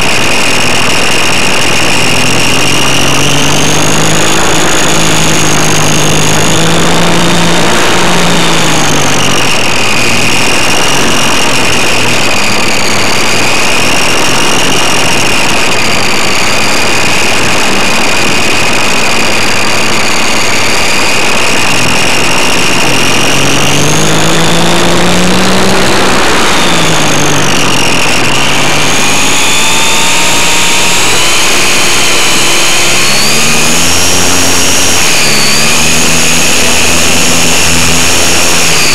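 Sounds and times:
electric motor and propeller whine: 0.0 - 38.9.

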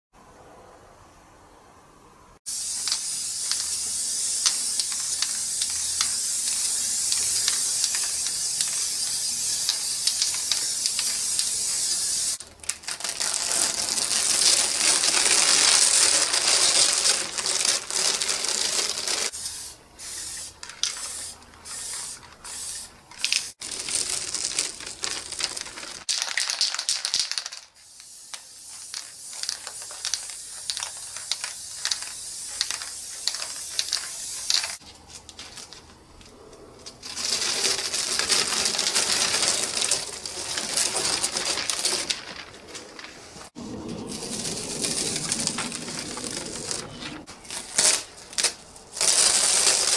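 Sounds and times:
aerosol spray can hissing: 2.5 - 12.4, 18.0 - 23.6, 27.1 - 34.8.

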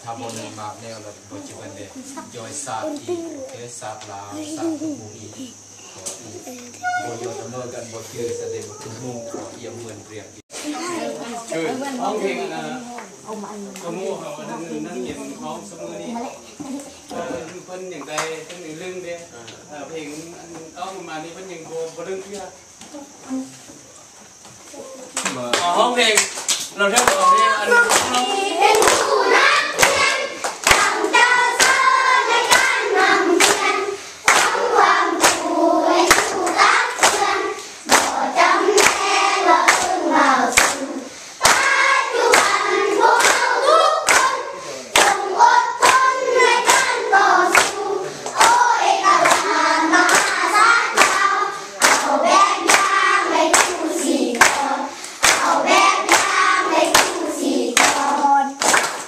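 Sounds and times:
hands clapping in rhythm: 18.0 - 18.6, 25.2 - 59.0
group of people singing: 27.2 - 59.0.

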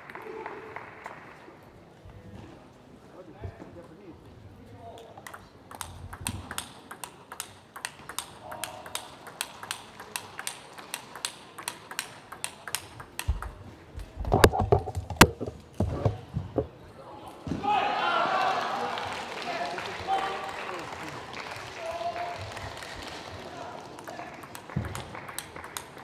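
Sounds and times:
table tennis ball clicking: 5.1 - 16.7, 24.5 - 26.0.

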